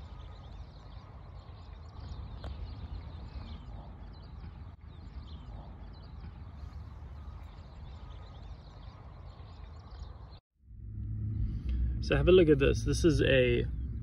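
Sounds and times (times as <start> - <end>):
birds chirping and singing: 0.0 - 10.4
wind rumble on microphone: 0.0 - 14.0.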